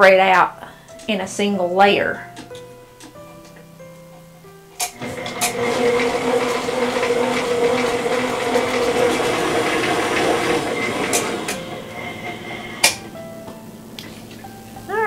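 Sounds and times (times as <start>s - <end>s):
stand mixer motor running: 4.9s - 13.2s.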